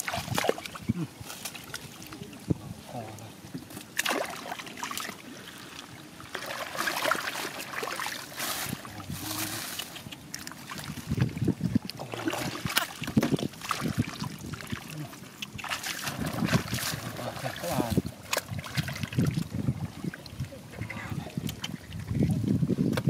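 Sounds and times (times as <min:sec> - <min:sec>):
hands splashing in muddy water: 0:00.0 - 0:01.9, 0:03.9 - 0:05.2, 0:06.3 - 0:19.6.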